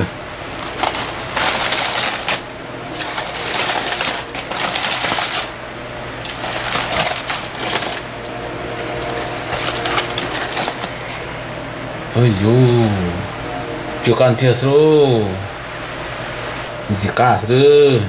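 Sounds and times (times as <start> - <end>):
foil and leaves crinkling: 0.5 - 11.3.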